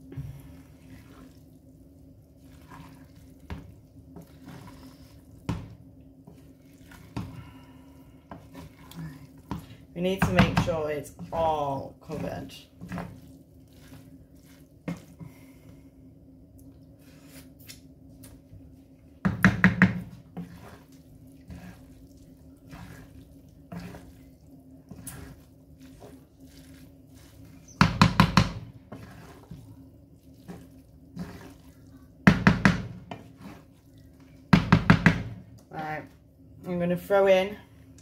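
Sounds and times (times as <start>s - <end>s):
steady low hum: 0.0s - 38.0s
spatula scraping frying pan: 4.2s - 5.3s, 20.2s - 27.8s, 28.8s - 31.8s, 33.0s - 33.9s.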